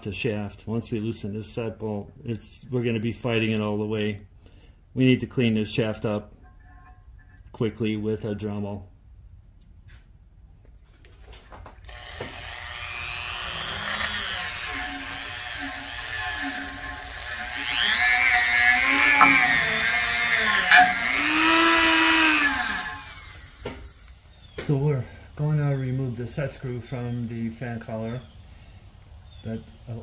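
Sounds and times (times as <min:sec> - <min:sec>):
rotary tool wire brush whining: 0:11.9 - 0:24.3.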